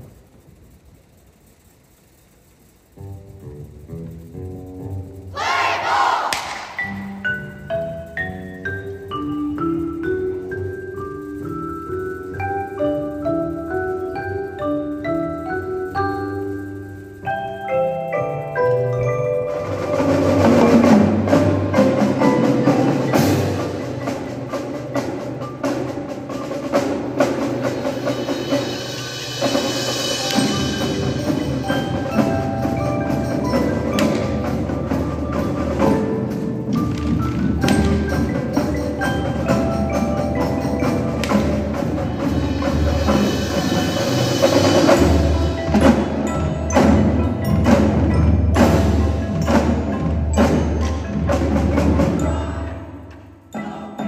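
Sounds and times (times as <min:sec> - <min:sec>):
marching drums: 0:05.4 - 0:07.2, 0:19.5 - 0:52.6
marimbas and mallet percussion: 0:06.7 - 0:54.0.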